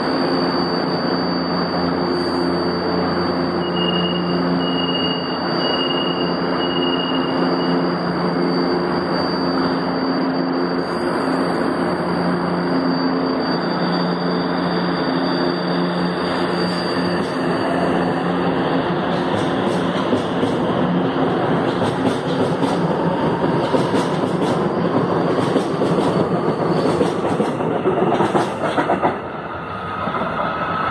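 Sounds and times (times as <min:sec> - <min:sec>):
train equipment humming: 0:00.0 - 0:30.9
train motor whine: 0:00.0 - 0:30.9
door closing beeps: 0:03.6 - 0:07.9.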